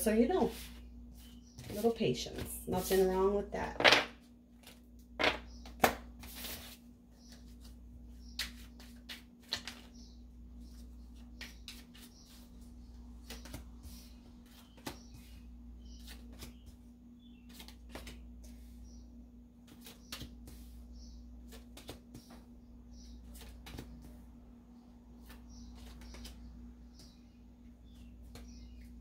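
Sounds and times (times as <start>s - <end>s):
cards flicking and tapping on table: 19.7s - 20.7s, 21.4s - 22.4s, 23.3s - 24.2s.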